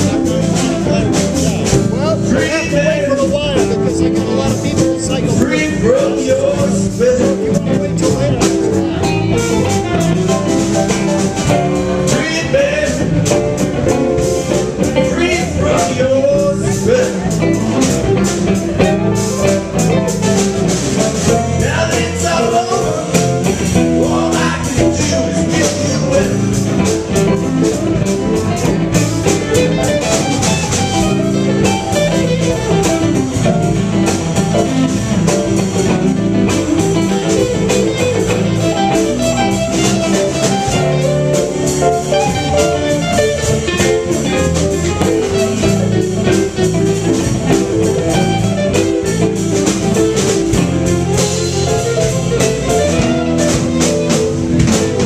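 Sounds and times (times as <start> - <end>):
man singing: 0.0 - 20.2, 21.0 - 27.4
blues band playing: 0.0 - 55.0
electric guitar lead: 0.0 - 55.0.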